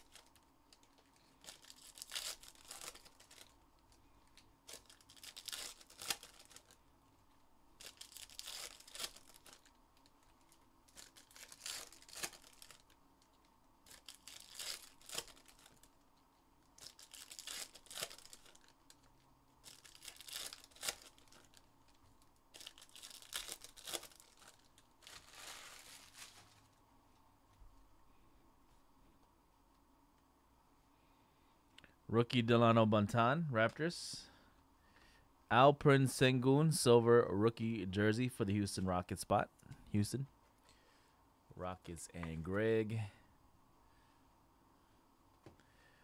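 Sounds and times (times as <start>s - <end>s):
foil wrappers tearing and crinkling: 0.0s - 3.6s, 4.6s - 6.8s, 7.8s - 13.0s, 13.8s - 15.9s, 16.8s - 26.7s.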